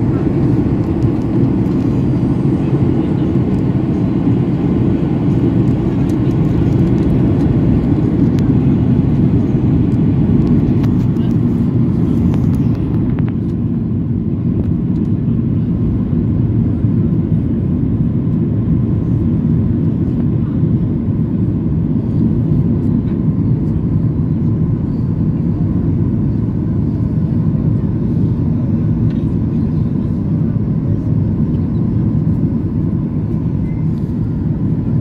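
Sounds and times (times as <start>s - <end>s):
airplane cabin engine rumble: 0.0s - 35.0s.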